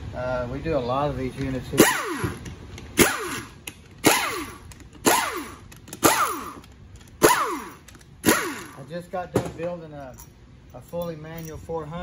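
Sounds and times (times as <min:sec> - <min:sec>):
air impact wrench bursts: 0:01.7 - 0:08.9.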